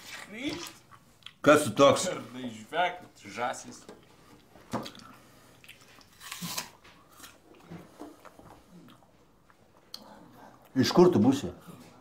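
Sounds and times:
person crunching food: 4.8 - 10.0.

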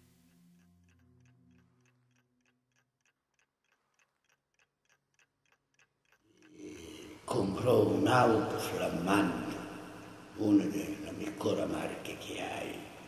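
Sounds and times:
clock ticking: 0.0 - 13.0.

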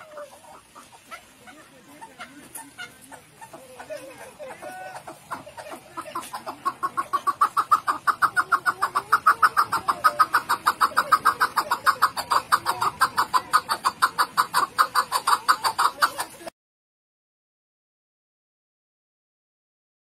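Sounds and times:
partridge calling sharp chucks: 0.0 - 16.5.

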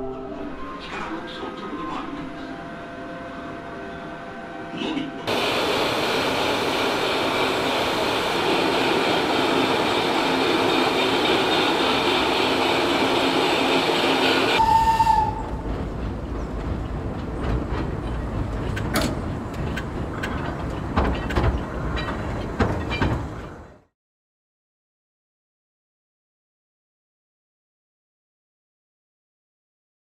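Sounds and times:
loud rushing train noise: 0.0 - 23.8
low train rumble: 0.0 - 23.9
train wheel clacks: 5.3 - 23.8
train whistle toot: 14.4 - 15.6.

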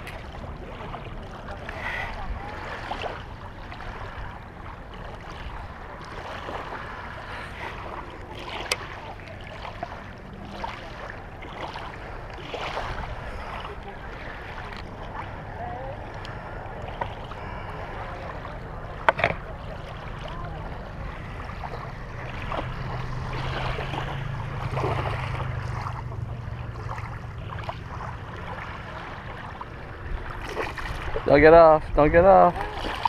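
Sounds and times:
lapping water: 0.0 - 31.4, 32.2 - 33.0.

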